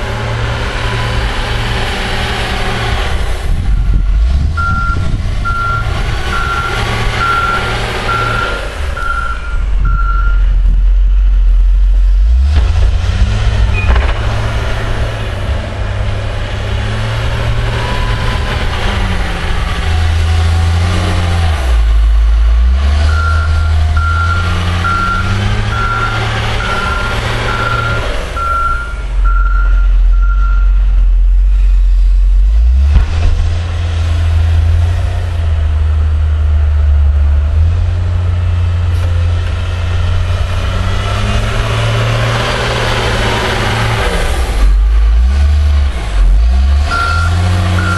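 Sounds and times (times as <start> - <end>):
diesel engine revving: 0.0 - 47.9
reverse alarm beeping: 4.6 - 10.4, 23.1 - 30.8, 46.9 - 47.9.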